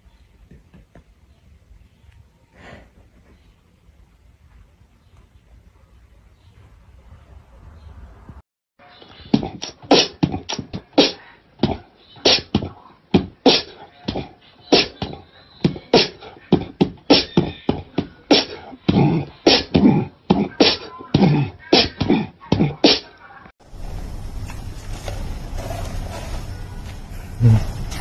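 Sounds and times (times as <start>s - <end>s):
person beatboxing: 9.3s - 23.1s.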